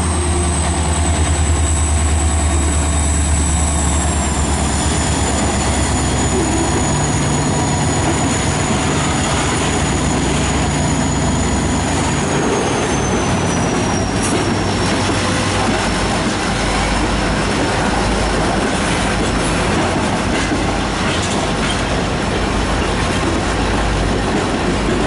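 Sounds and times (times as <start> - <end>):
high wheel squeal: 0.0 - 15.4
diesel locomotives rumbling past: 0.0 - 25.0.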